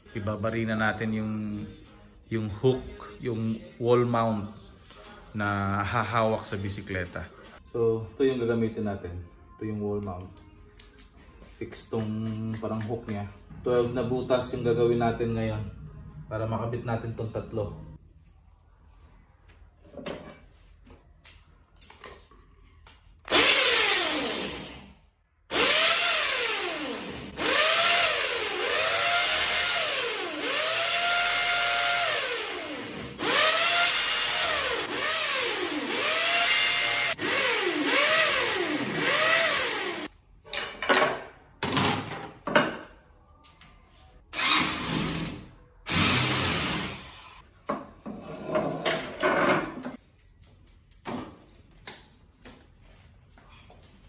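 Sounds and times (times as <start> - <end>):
electric drill boring into wall: 23.3 - 24.9, 25.5 - 40.1, 44.4 - 47.4.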